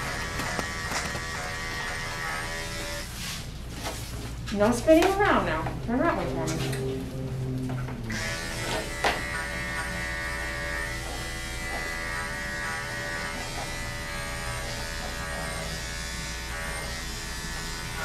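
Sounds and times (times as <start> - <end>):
electric clipper buzzing: 0.0 - 3.1, 8.1 - 18.0.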